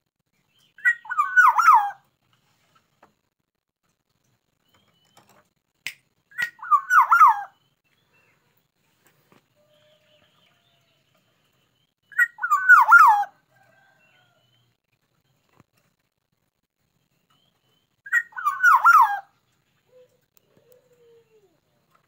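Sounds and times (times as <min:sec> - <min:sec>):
bird singing fluting whistles: 0:06.3 - 0:07.6, 0:12.1 - 0:13.3, 0:18.1 - 0:19.3.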